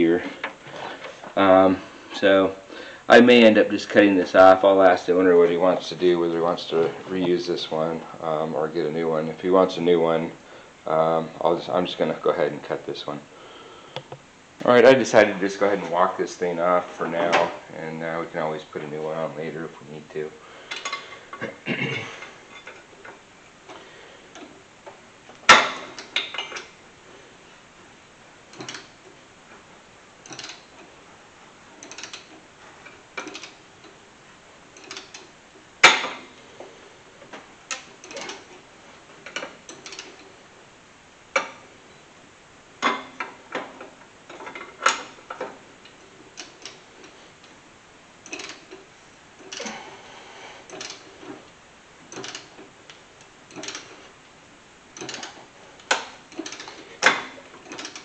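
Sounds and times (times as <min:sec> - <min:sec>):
ratchet wrench clicking: 0:30.2 - 0:30.6, 0:31.8 - 0:32.2, 0:52.1 - 0:52.5, 0:53.5 - 0:53.9.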